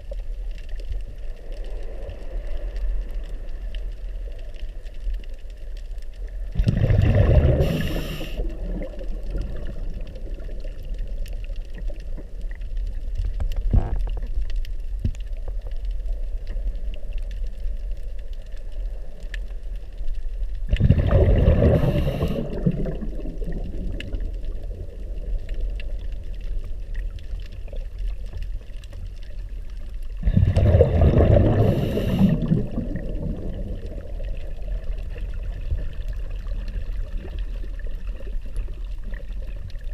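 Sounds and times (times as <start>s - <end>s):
faint crackling: 0.0s - 39.9s
low underwater rumble: 0.0s - 39.9s
slow calm breathing: 1.1s - 5.6s, 6.3s - 11.7s, 21.0s - 23.6s, 29.0s - 36.4s
scuba regulator bubbles: 6.2s - 14.5s, 20.6s - 39.9s.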